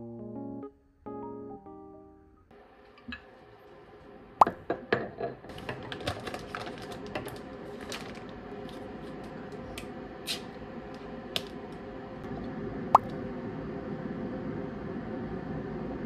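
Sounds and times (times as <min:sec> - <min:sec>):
plastic cups rustling and clicking: 0:05.5 - 0:09.8.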